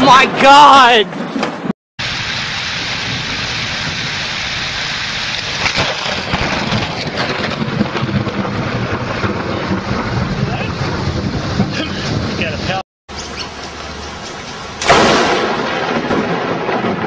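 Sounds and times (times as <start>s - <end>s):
heavy rain hissing: 2.0s - 7.1s
lightning crack: 2.0s - 12.8s, 14.6s - 17.0s
low rumbling thunder: 5.4s - 12.8s, 14.6s - 17.0s.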